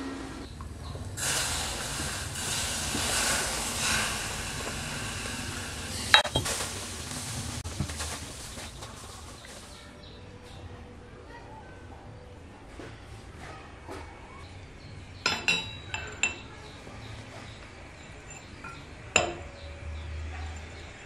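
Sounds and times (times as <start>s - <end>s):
liquid hissing on hot metal: 0.9s - 9.8s
metallic clink: 15.2s - 16.6s, 18.2s - 19.8s.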